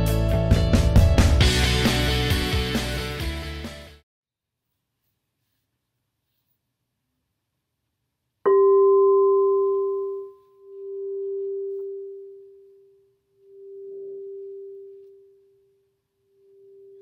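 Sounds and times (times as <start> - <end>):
crystal singing bowl ringing: 8.5 - 17.0.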